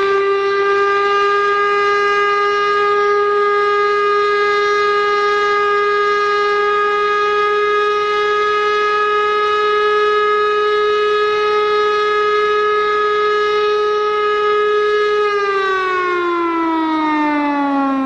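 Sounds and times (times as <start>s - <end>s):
air raid siren wailing: 0.0s - 18.0s.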